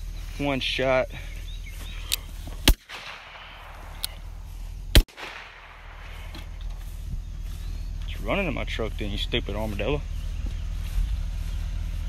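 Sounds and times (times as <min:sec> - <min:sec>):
handgun shots: 0:02.6 - 0:06.7.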